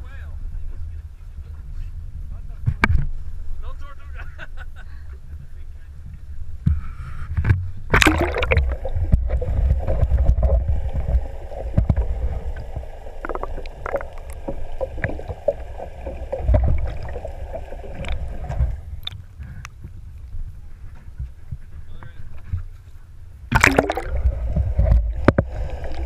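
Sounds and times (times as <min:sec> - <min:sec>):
splash into water: 0:07.9 - 0:09.4, 0:23.5 - 0:24.3
underwater water rushing: 0:07.9 - 0:19.2, 0:23.5 - 0:26.0
steady hum: 0:07.9 - 0:19.4, 0:23.4 - 0:26.0.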